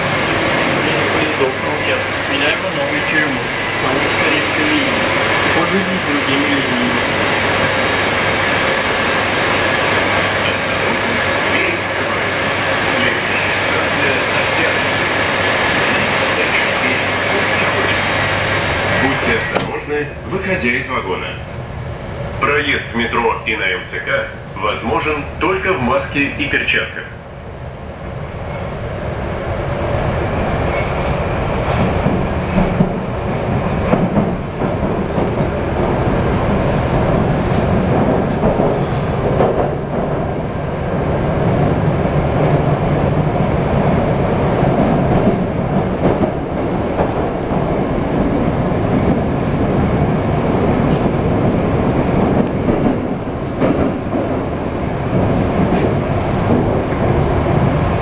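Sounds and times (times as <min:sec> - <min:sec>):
train wheels rumbling in tunnel: 0:00.0 - 0:58.0.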